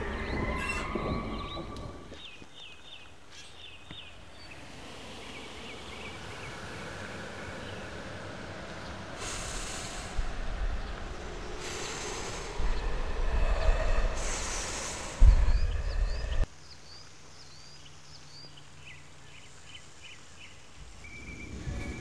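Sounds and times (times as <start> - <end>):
birds chirping: 0.0 - 8.0, 8.6 - 22.0
loud rumbling: 4.6 - 16.5
heavy thump: 15.2 - 16.4.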